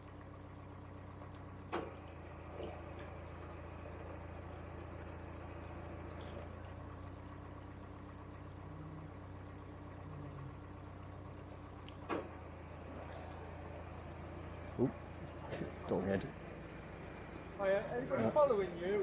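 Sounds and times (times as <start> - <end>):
diesel engine running: 0.0 - 19.0.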